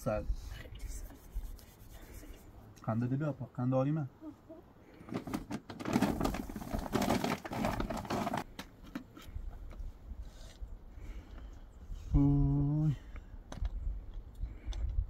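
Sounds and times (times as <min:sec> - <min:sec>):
objects rustling and clicking: 0:05.0 - 0:09.8.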